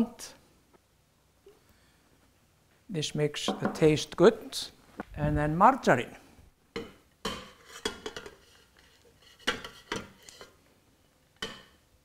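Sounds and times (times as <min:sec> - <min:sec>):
spatula scraping bowl: 0:07.5 - 0:10.6.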